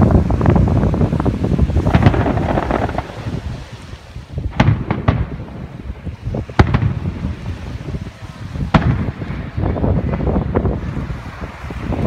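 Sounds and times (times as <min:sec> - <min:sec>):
wind rumble on microphone: 0:00.0 - 0:12.0
fireworks shells bursting: 0:01.8 - 0:07.7.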